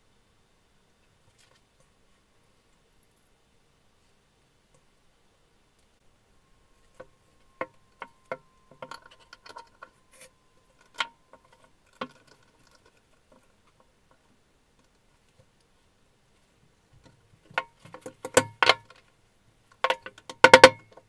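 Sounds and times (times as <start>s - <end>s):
faint metallic ring: 6.2s - 12.9s
metal parts knocking and clicking: 7.6s - 10.0s, 19.8s - 21.0s.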